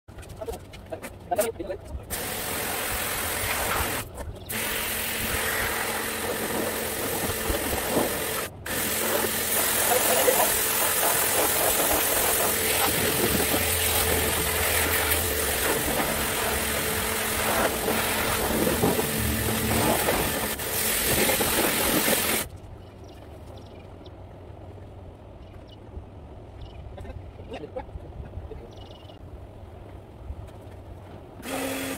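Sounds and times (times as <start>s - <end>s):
pressure washer motor hum: 2.1s - 22.5s, 31.4s - 31.9s
pressure washer spray hiss: 2.1s - 22.5s.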